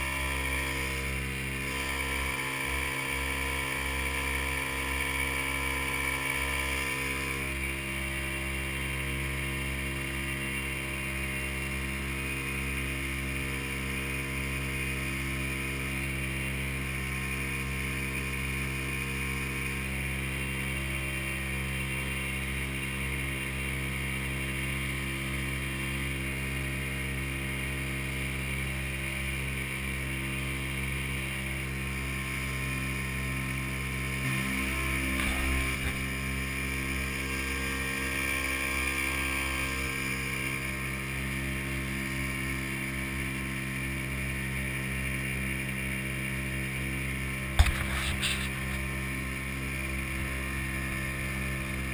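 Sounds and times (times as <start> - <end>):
motorboat engine humming: 32.8 - 43.6, 44.2 - 51.9.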